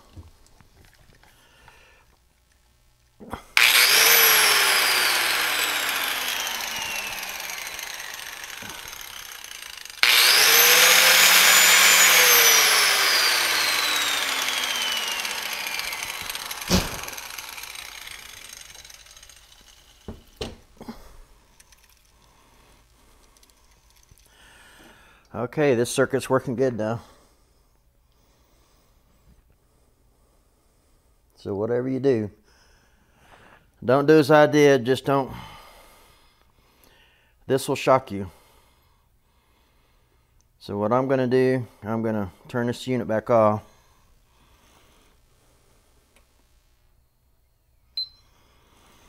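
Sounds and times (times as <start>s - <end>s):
electric grinder whine: 3.6s - 20.6s
sharp knock: 16.7s - 17.0s.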